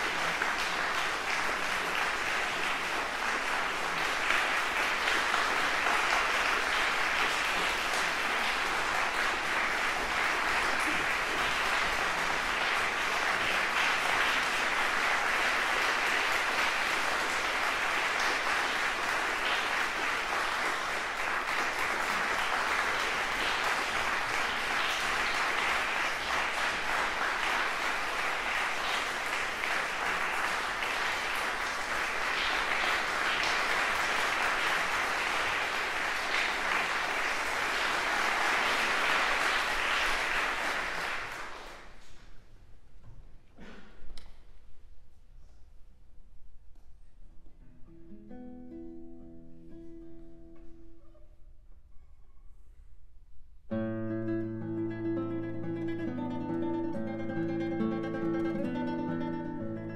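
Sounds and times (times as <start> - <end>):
audience applauding: 0.0 - 42.2.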